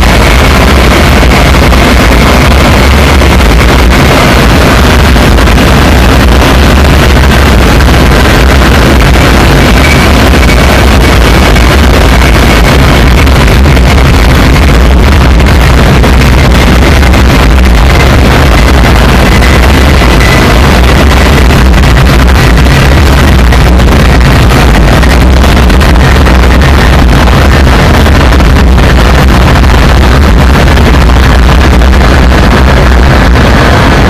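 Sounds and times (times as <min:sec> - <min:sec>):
heavy low electronic rumble: 0:00.0 - 0:34.0.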